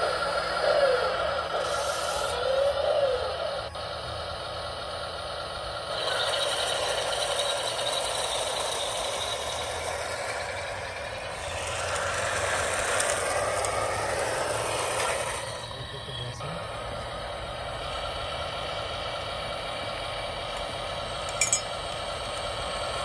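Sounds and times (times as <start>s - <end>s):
electric motors and gearboxes running: 0.0s - 23.0s.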